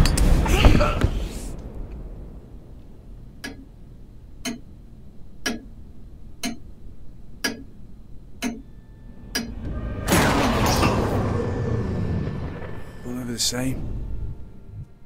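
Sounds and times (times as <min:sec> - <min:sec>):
mantel clock ticking: 0:03.2 - 0:09.7.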